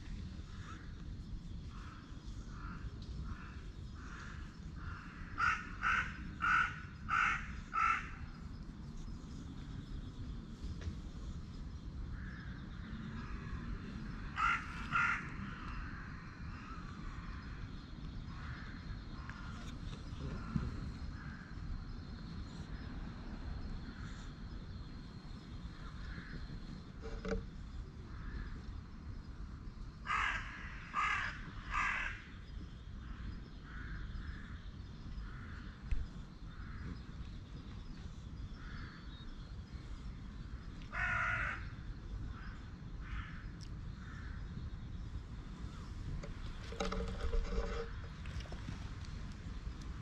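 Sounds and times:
loud animal calls: 5.4s - 8.2s, 14.3s - 15.9s.

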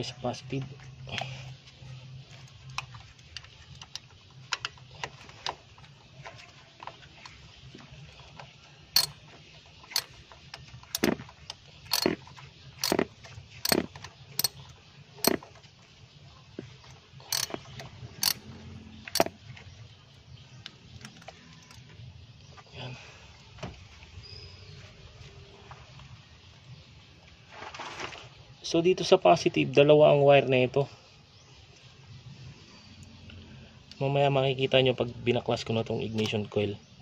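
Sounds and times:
socket wrench ratchet clicking: 9.0s - 9.2s, 9.9s - 10.2s, 11.9s - 12.2s, 12.8s - 14.6s, 15.2s - 15.4s, 17.3s - 18.5s, 19.1s - 19.3s.

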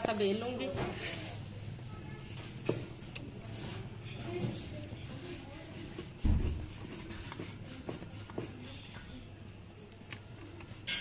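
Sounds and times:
rolling pin rubbing on dough: 0.3s - 8.9s, 10.4s - 11.0s.

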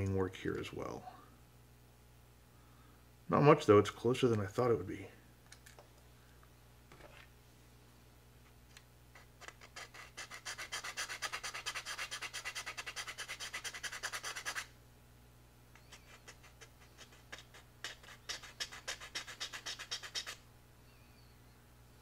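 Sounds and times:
file rasping on plastic: 9.2s - 14.7s, 15.8s - 20.4s.

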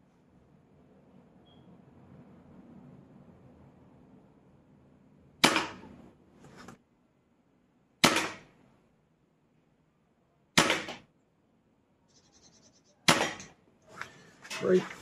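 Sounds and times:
air rifle shots: 5.4s - 6.0s, 8.0s - 8.6s, 10.6s - 11.1s, 13.0s - 13.6s.

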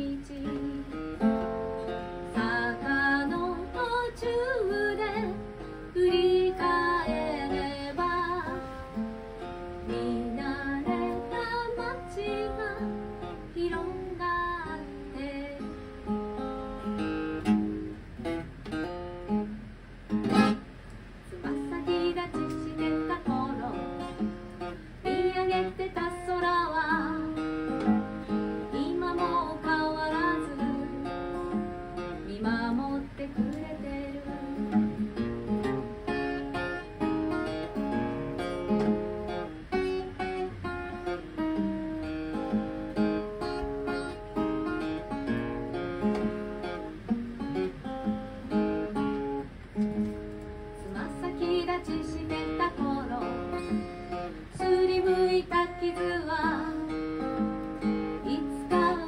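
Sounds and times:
woman singing: 0.0s - 9.0s, 9.8s - 16.2s, 21.3s - 35.1s, 50.8s - 59.0s
acoustic guitar: 0.0s - 59.0s.

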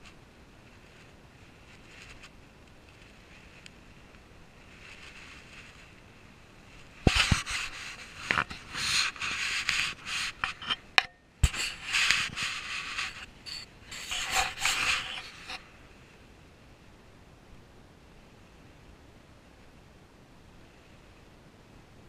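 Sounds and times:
rustling and rubbing at microphone: 0.0s - 16.0s.

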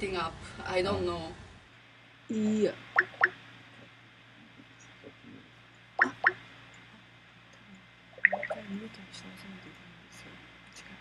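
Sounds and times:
rising bloops ringtone: 3.0s - 3.3s, 8.2s - 8.6s.

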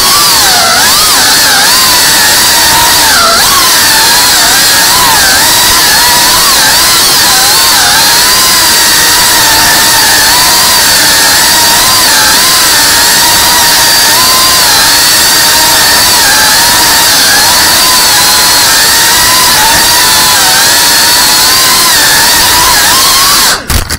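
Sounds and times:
small drone motors whining: 0.0s - 23.9s.

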